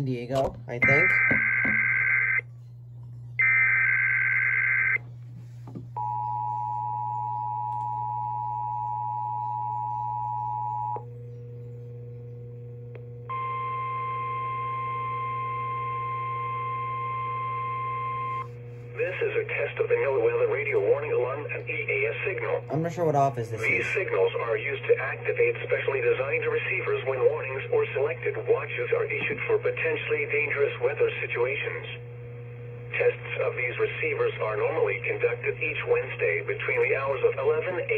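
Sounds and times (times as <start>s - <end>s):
low steady hum: 0.0s - 37.9s
single-pitch alarm tone: 0.8s - 2.4s, 3.4s - 5.0s, 13.3s - 18.5s
two-tone attention signal: 0.8s - 2.4s, 13.3s - 18.5s
warbling data tones: 0.8s - 2.4s, 3.4s - 5.0s.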